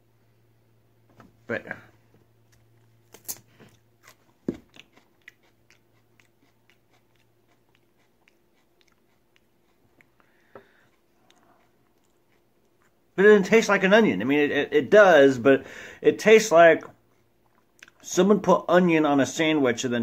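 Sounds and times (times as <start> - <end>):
person crunching raw onion: 2.4 - 13.0.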